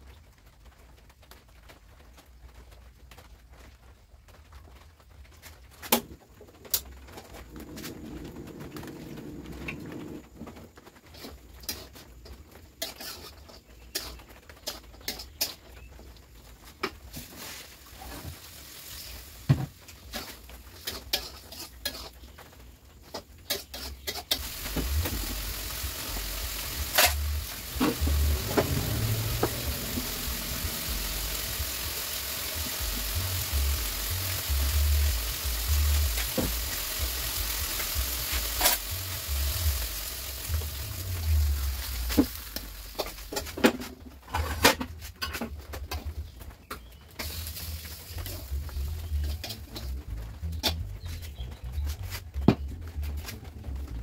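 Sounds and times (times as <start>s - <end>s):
food sizzling while frying: 6.7s - 45.2s, 45.9s - 53.1s
spatula clinking and scraping wok: 11.2s - 15.7s, 20.0s - 22.2s, 23.0s - 40.8s.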